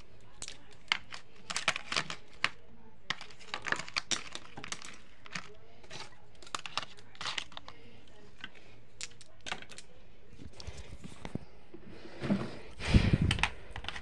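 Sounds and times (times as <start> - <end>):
plastic toy pieces clicking: 0.0 - 7.7
paper and cardboard rustling: 0.0 - 8.2.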